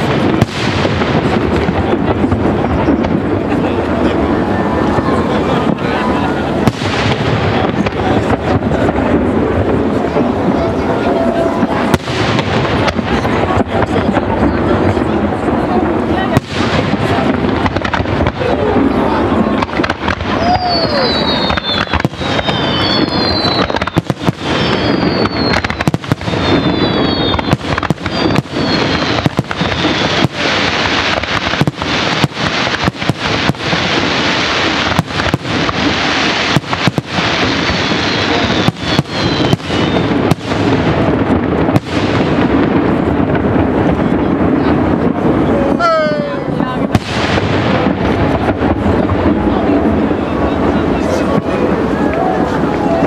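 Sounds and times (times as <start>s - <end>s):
firework bangs: 0.0s - 53.0s
firework crackle: 0.0s - 53.0s
falling firework whistles: 20.2s - 31.6s, 34.8s - 40.7s.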